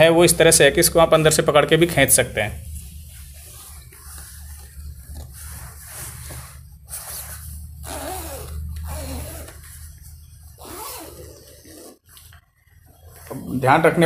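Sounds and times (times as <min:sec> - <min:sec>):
steady low hum: 0:00.0 - 0:14.0
sleeping bag fabric rustling: 0:02.8 - 0:13.3.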